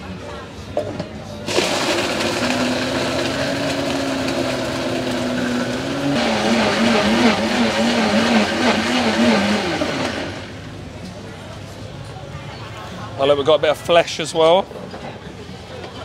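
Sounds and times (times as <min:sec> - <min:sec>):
blender motor running: 0:01.5 - 0:10.6.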